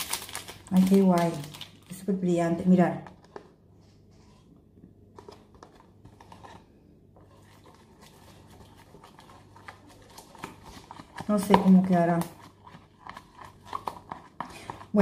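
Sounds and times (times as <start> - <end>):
low room hum: 0.0 - 15.0
plastic stirrer scraping tub: 5.1 - 15.0.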